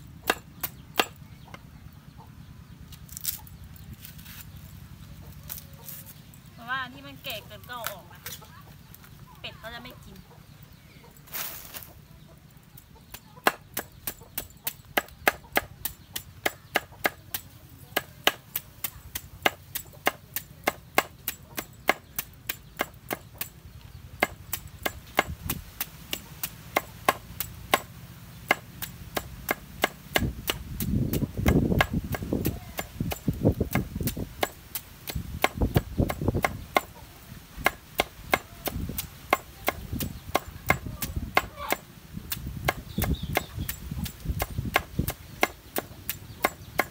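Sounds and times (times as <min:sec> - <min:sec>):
knife chopping on wooden board: 0:24.2 - 0:27.9, 0:28.5 - 0:36.9, 0:37.6 - 0:41.8, 0:42.6 - 0:46.9.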